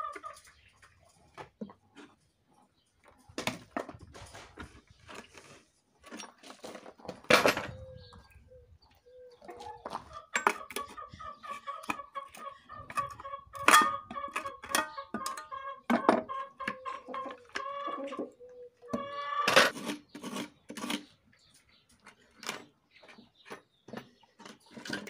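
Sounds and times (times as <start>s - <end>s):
tools knocking on wood and metal: 12.9s - 16.8s.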